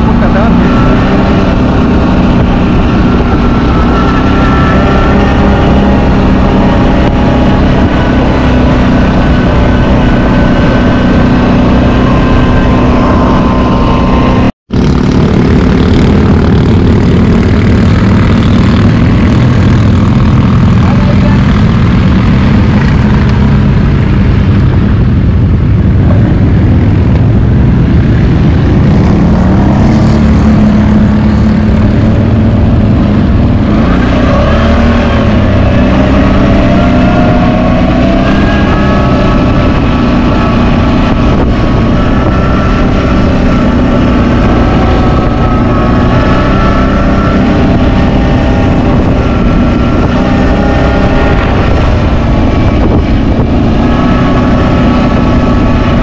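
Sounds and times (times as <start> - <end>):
atv engine running: 0.0 - 56.0
rising whine: 0.0 - 56.0.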